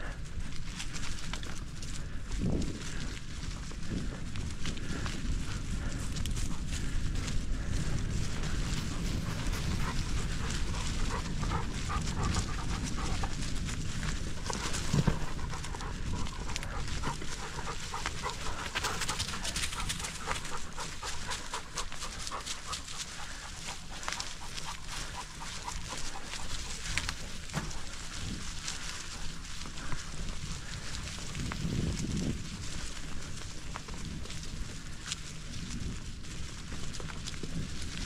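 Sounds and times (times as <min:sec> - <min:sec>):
low wind rumble: 0:00.0 - 0:38.0
scattered crackles: 0:00.0 - 0:38.0
dog panting: 0:04.8 - 0:31.8.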